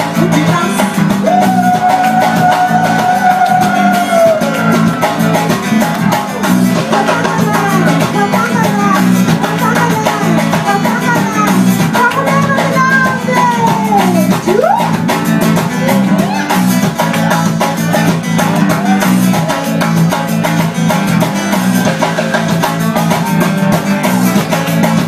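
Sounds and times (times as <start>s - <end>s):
guitars: 0.0s - 25.0s
steady drum beat: 0.0s - 25.0s
person singing long notes: 0.1s - 5.7s.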